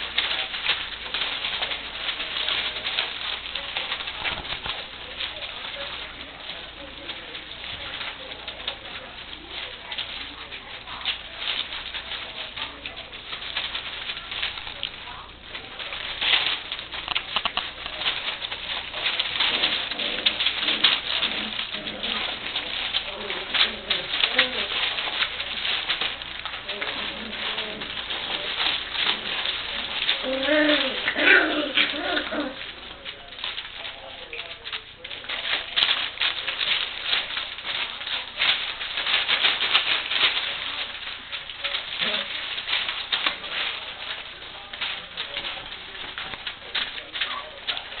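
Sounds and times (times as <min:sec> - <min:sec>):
puppies low vocal sounds: 0:00.0 - 0:48.0
puppies smacking and lapping food: 0:00.0 - 0:48.0.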